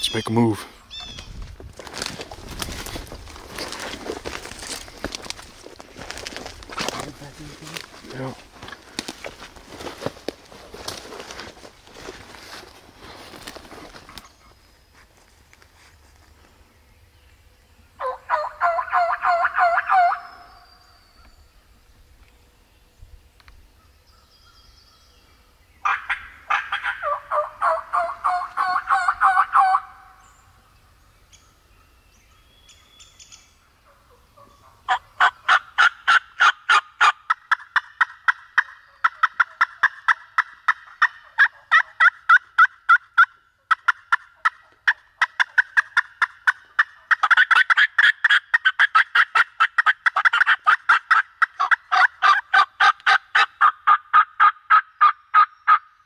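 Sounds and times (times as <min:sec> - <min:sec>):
turkey yelping: 0:18.0 - 0:20.4, 0:25.8 - 0:30.2, 0:33.9 - 0:55.8.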